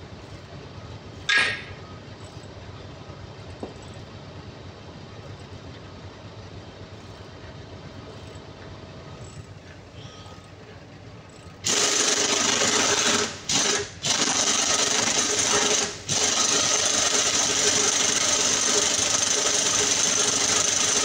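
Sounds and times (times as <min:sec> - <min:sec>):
low machine rumble: 0:00.0 - 0:14.2.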